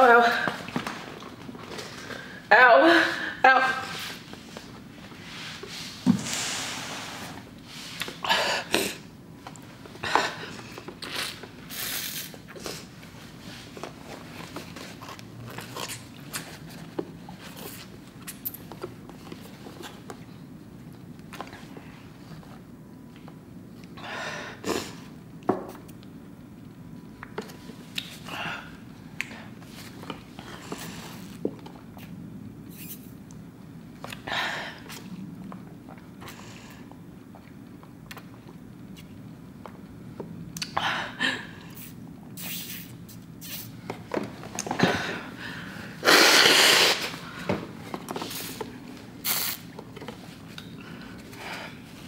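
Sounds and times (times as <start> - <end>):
sipping through a straw: 41.8 - 43.7, 46.0 - 47.1, 49.2 - 49.7.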